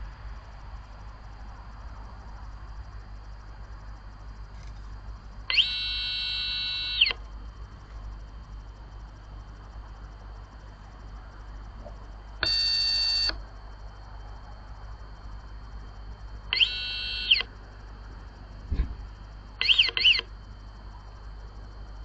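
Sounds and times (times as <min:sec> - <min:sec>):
electronic alarm siren: 0:05.5 - 0:07.2, 0:12.4 - 0:13.4, 0:16.5 - 0:17.5, 0:19.6 - 0:20.3
dull thump: 0:18.6 - 0:19.1.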